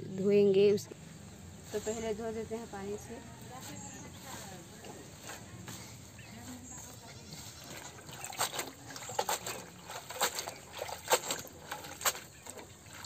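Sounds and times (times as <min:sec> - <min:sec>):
hands splashing greens in water: 0:07.6 - 0:13.0.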